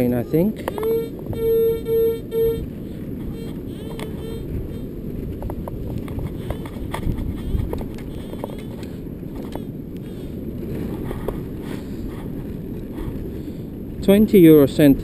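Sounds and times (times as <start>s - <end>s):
metal detector beeps: 0.0s - 2.7s, 3.3s - 4.9s, 6.2s - 8.8s
wind rumble on microphone: 0.0s - 15.0s.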